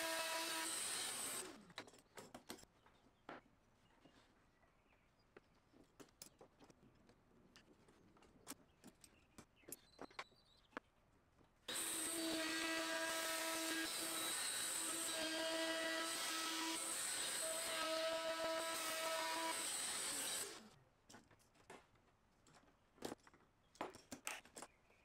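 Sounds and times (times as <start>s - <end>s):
trim router whining: 0.0s - 1.6s, 11.7s - 20.7s.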